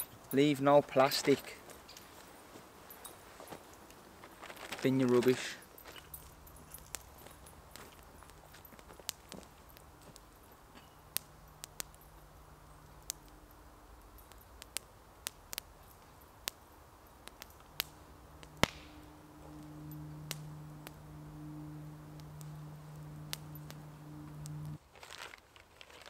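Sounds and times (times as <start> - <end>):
campfire popping and crackling: 3.8 - 24.8
distant propeller aircraft drone: 17.9 - 24.8.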